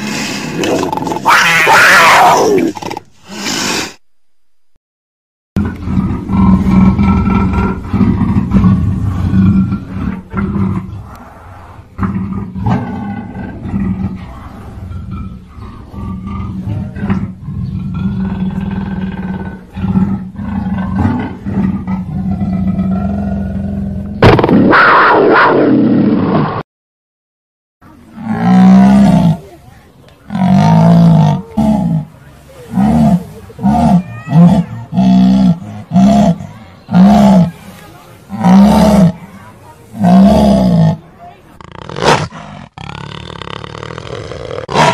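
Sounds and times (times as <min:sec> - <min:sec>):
jaguar roaring: 0:05.6 - 0:26.1, 0:28.1 - 0:29.5, 0:30.3 - 0:37.6, 0:38.3 - 0:41.0, 0:41.6 - 0:44.9.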